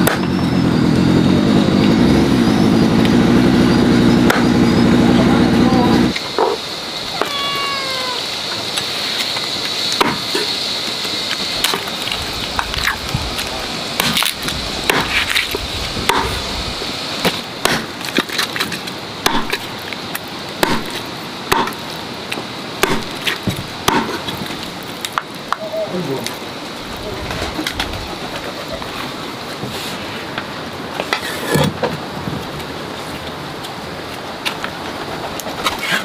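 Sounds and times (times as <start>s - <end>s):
high-pitched buzz: 0.0s - 17.5s
cleaver chopping on a block: 10.0s - 10.2s, 14.9s - 15.2s, 16.1s - 16.3s, 17.3s - 17.9s, 19.2s - 19.6s, 20.6s - 21.8s, 22.8s - 24.4s.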